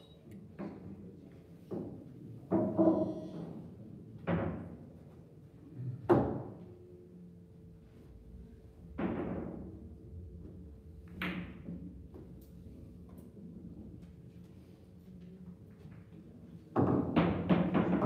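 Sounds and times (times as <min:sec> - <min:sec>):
billiard balls knocking: 0:01.8 - 0:03.1, 0:16.8 - 0:18.0.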